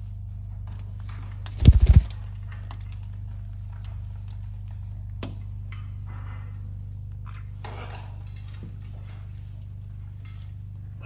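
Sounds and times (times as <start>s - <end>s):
steady low hum: 0.0s - 7.6s
parrot wings flapping: 1.4s - 2.4s.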